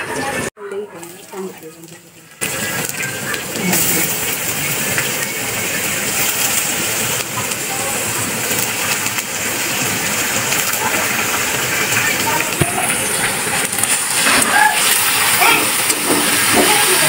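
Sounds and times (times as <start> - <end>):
vegetables sizzling in hot oil: 0.7 - 17.0.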